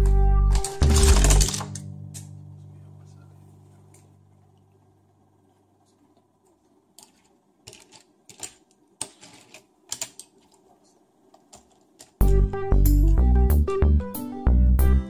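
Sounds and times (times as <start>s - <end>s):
loud music: 12.2s - 15.0s.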